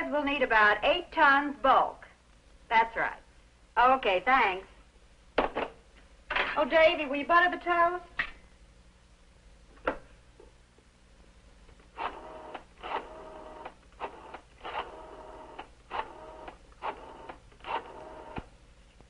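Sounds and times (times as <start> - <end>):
rotary telephone dial whirring: 11.9 - 18.5.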